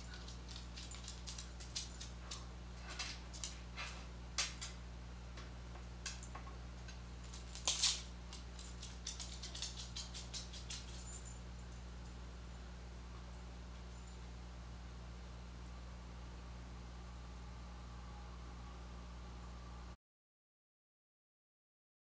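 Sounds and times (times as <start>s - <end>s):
dog claws clicking on hard floor: 0.0s - 4.8s, 5.8s - 11.3s
low steady hum: 0.0s - 20.0s.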